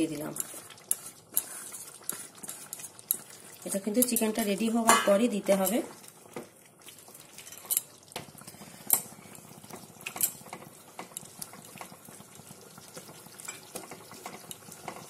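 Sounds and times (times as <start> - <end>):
spatula scraping and clinking pan: 0.2 - 3.3.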